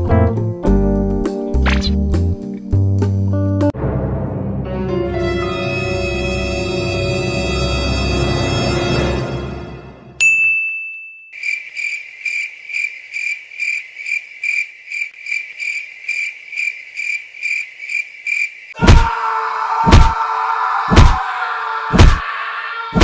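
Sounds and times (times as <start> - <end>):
eerie music: 3.4 - 10.2
bright ding: 10.2 - 11.4
cricket chirping: 11.3 - 18.8
loud thump: 22.0 - 22.2.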